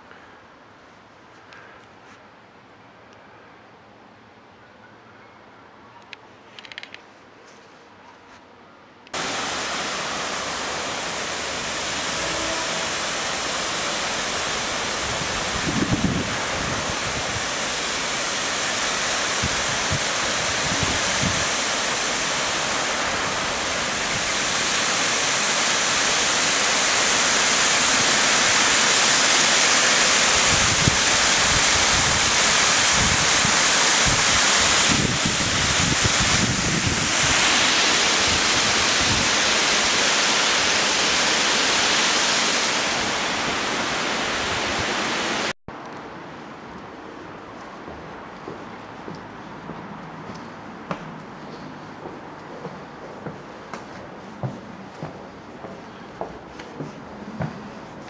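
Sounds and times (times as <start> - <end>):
water rushing over weir: 9.2 - 45.6.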